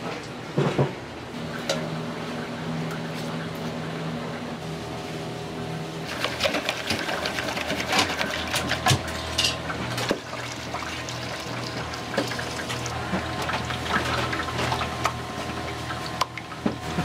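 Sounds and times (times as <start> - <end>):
steady low hum: 0.0 - 17.0
utensils clattering against pot: 7.8 - 10.1
broth pouring and splashing: 9.9 - 16.6.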